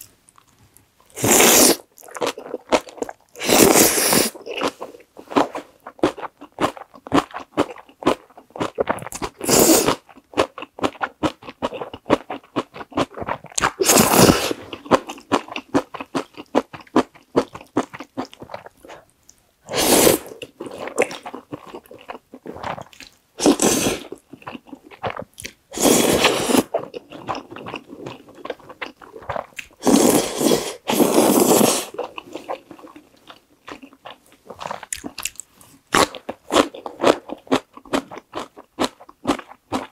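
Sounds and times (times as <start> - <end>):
noodle slurps: 1.2 - 2.3, 19.7 - 20.8, 23.4 - 24.1, 25.0 - 26.8, 29.8 - 32.0
wet chewing with mouth clicks: 20.2 - 30.2, 31.9 - 39.9.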